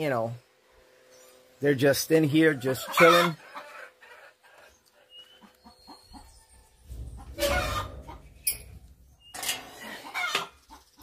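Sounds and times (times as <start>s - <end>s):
chickens clucking: 2.2s - 11.0s
low rumble: 6.7s - 9.2s.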